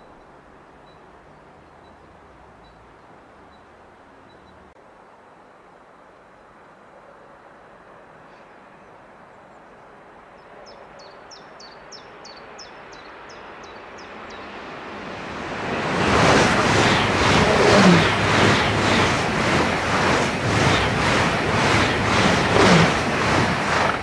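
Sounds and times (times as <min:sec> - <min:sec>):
high-speed train passing: 0:12.0 - 0:24.0.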